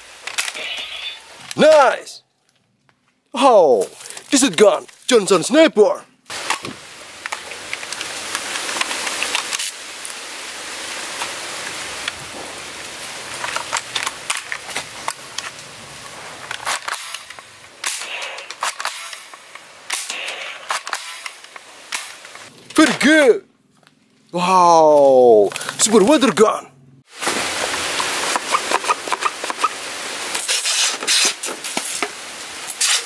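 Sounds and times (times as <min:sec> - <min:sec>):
steady hiss: 0:06.3 - 0:22.6, 0:27.0 - 0:33.0
toy rifle clicks and pops: 0:16.5 - 0:22.2.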